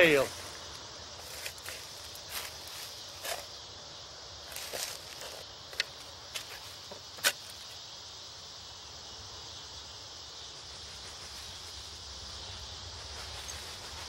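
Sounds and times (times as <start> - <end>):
high-pitched hiss: 0.0 - 14.0
digging tool striking ground: 5.8 - 7.5.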